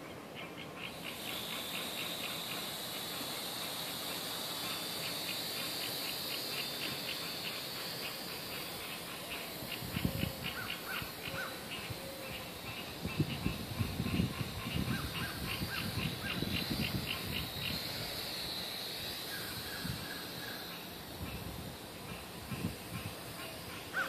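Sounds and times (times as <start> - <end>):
quadcopter propellers whining: 0.7 - 24.0.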